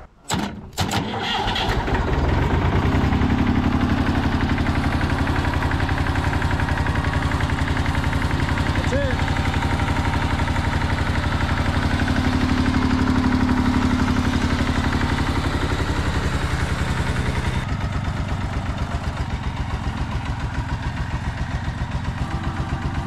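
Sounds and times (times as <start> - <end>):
tractor engine running: 0.0 - 23.0.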